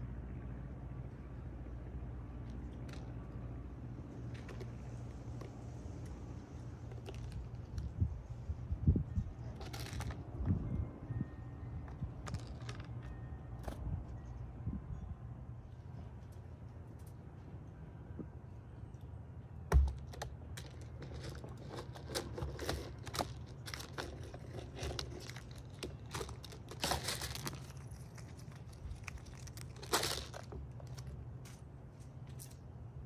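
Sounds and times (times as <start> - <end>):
crunching of seeds: 4.1 - 8.3, 19.9 - 32.7.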